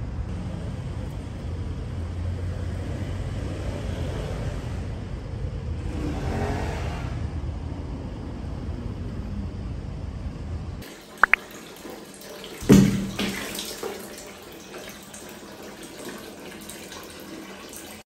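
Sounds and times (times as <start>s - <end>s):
tap water running: 10.8s - 18.0s.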